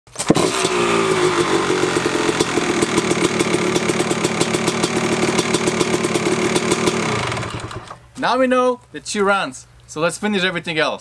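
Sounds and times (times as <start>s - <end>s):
motorcycle engine kick-started: 0.1s - 8.0s
two-stroke engine idling: 0.3s - 8.0s.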